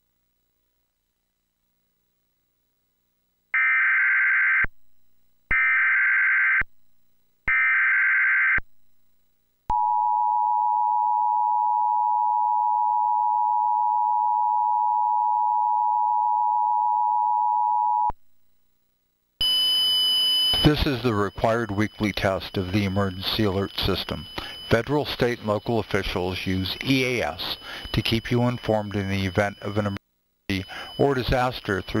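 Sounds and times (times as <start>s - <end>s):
data tone bursts: 19.4s - 32.0s
two-tone attention signal: 20.5s - 32.0s.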